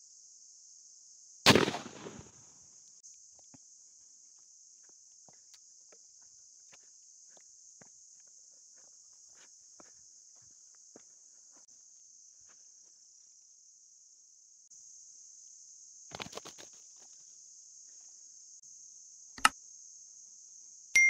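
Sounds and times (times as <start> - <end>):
footsteps through grass: 1.5 - 2.3
shotgun shot: 1.5 - 2.3.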